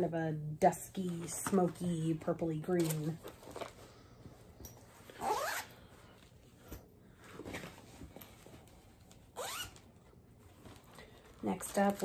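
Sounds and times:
zipper rasping: 5.2 - 5.7, 9.4 - 9.8.

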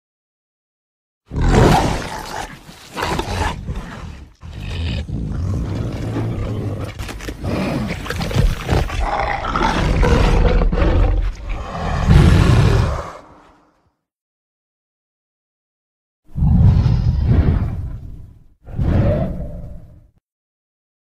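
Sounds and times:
creature roaring: 1.3 - 13.7.

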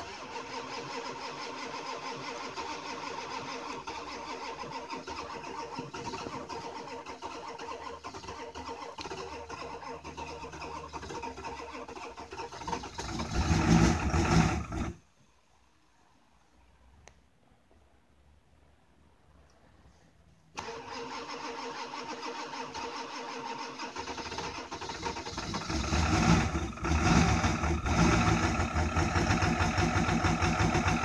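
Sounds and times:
diesel engine running: 24.8 - 31.0.

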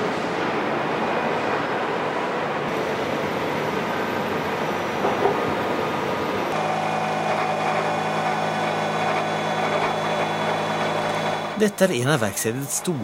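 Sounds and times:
heavy machinery running: 1.7 - 13.0
low machine hum: 2.7 - 13.0.

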